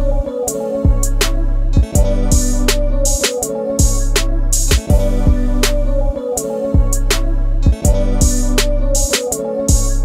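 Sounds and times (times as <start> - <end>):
held bass notes: 0.9 - 3.2, 3.8 - 6.2, 6.8 - 9.1
drum and cymbal hits: 0.9 - 5.4.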